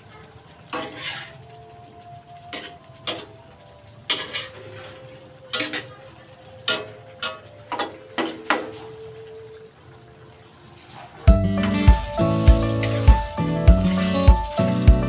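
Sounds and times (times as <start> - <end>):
spatula scraping metal wok: 0.7 - 1.5, 2.5 - 3.3, 4.1 - 8.7.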